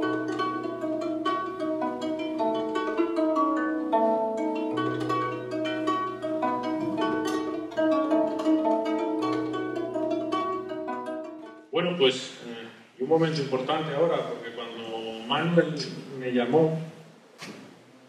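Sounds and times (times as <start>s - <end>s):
plucked string instrument melody: 0.0s - 11.7s.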